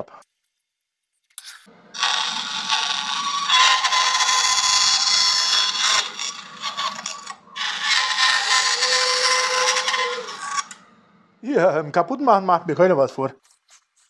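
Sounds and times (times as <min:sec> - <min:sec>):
bandsaw motor hum: 0:01.7 - 0:11.4
bandsaw rasping through wood: 0:01.9 - 0:10.8.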